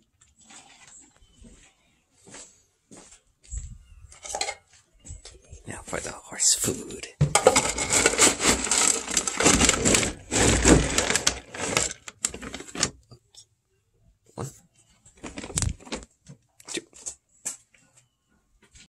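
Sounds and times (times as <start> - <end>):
feed bags rustling and rattling: 7.2 - 13.0, 15.1 - 16.2.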